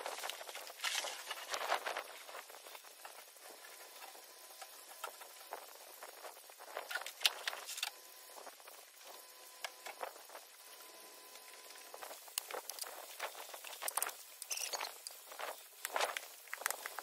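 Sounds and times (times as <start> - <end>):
snow crackling and pattering: 0.0 - 4.1, 11.6 - 17.0.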